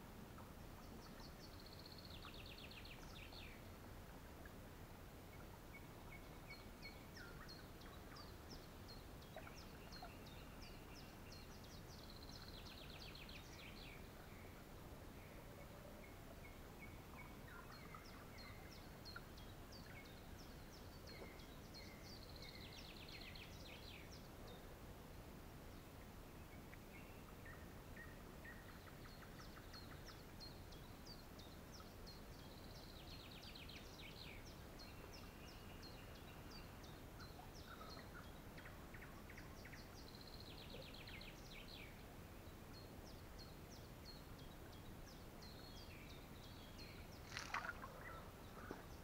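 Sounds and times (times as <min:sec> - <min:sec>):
low background hiss: 0:00.0 - 0:49.0
short bird chirps: 0:47.2 - 0:48.8.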